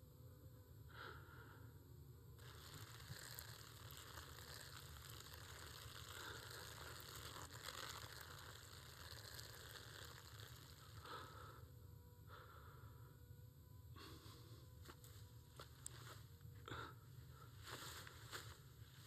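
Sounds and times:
boy urinating onto ground: 0:02.4 - 0:11.1.

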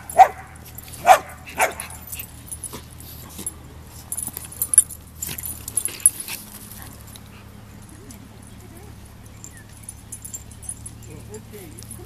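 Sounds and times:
metal collar tags jingling: 0:00.0 - 0:12.0.

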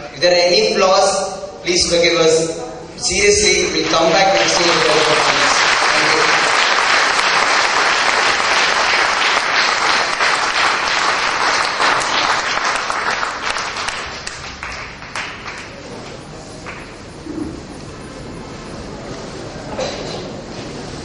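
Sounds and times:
audience applauding: 0:03.5 - 0:17.4.

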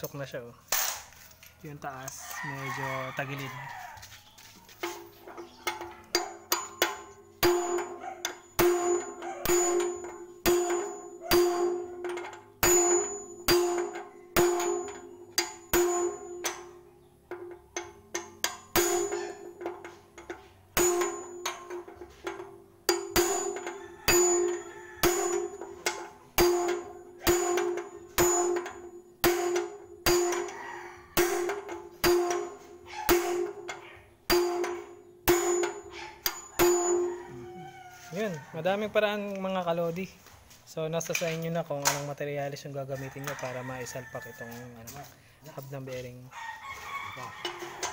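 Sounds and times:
hammer blows on steel: 0:31.2 - 0:37.1.

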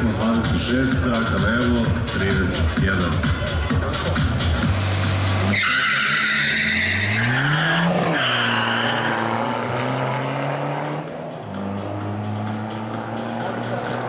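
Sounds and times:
car engines accelerating: 0:00.0 - 0:14.0
tyres squealing: 0:05.4 - 0:09.6.

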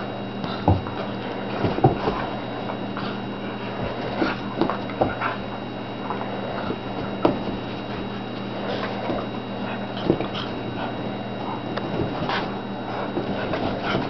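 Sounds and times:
dogs play-fighting: 0:00.0 - 0:14.0
steady low hum: 0:00.0 - 0:14.0
scuffles on carpet: 0:06.2 - 0:14.0.

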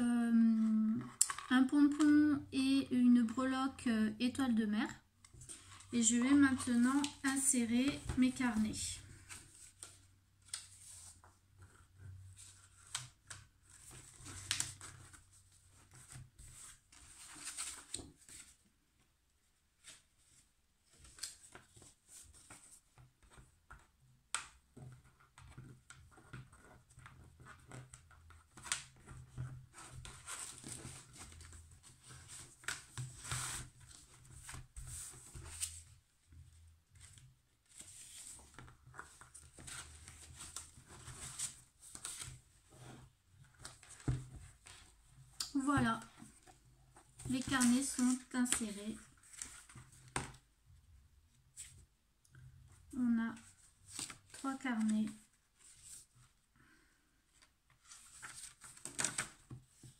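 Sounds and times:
paper rustling and scraping: 0:05.3 - 0:18.6, 0:25.6 - 0:45.0, 0:47.2 - 0:50.4, 0:57.8 - 0:59.9.

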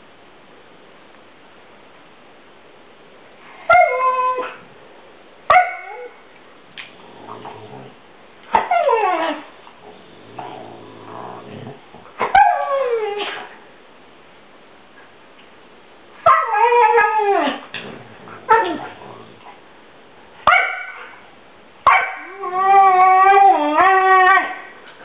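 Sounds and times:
dog grumbling: 0:07.0 - 0:08.0, 0:09.8 - 0:12.1.

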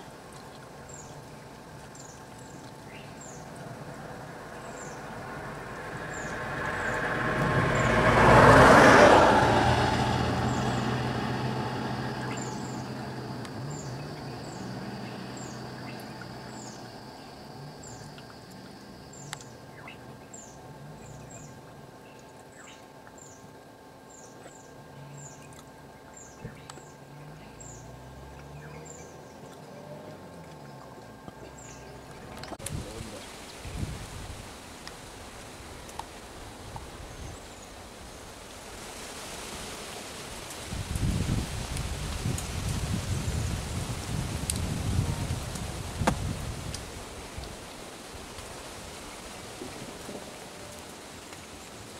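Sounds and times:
vehicle passing close: 0:03.2 - 0:21.7, 0:26.2 - 0:34.4.

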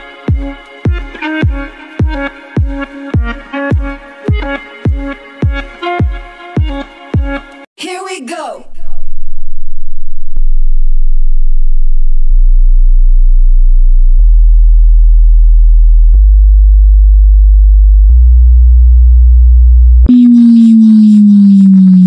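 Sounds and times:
low sine test tone: 0:09.0 - 0:22.0
higher falling tone: 0:20.0 - 0:22.0.

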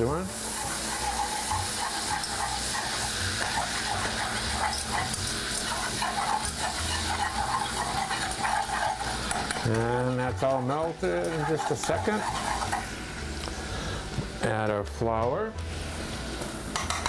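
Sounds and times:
butter sizzling in a pan: 0:00.0 - 0:14.1, 0:15.8 - 0:17.0
whisk scraping a pan: 0:00.4 - 0:13.0.

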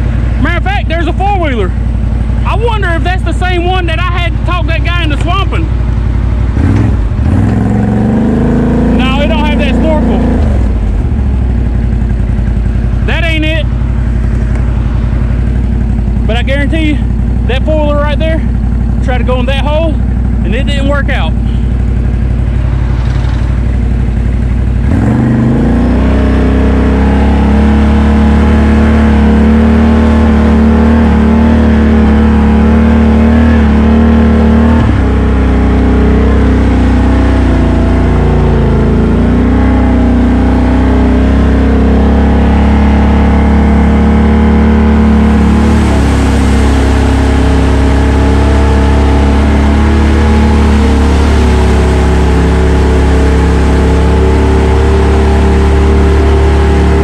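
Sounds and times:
quad bike engine revving: 0:00.0 - 0:57.0
tyres splashing through water: 0:42.6 - 0:57.0.

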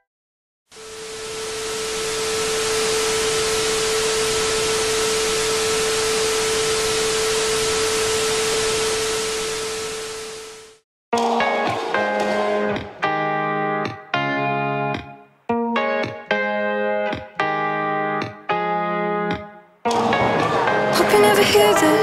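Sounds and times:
static hiss: 0:00.7 - 0:10.8.

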